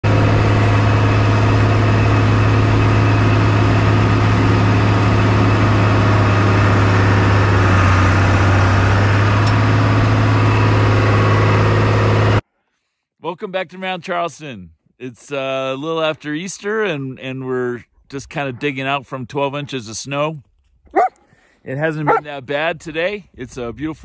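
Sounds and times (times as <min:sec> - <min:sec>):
snowcat engine droning: 0:00.0 - 0:12.4, 0:22.0 - 0:22.4.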